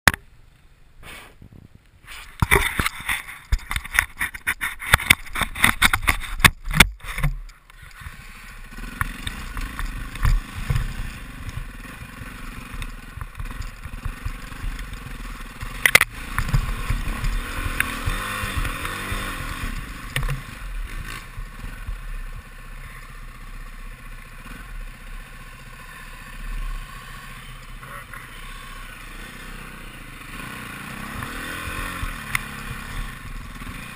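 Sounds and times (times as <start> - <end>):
dirt bike engine revving: 4.9 - 33.9.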